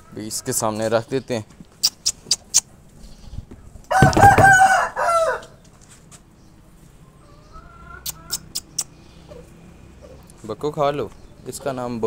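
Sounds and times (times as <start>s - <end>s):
rooster crowing: 3.9s - 5.6s.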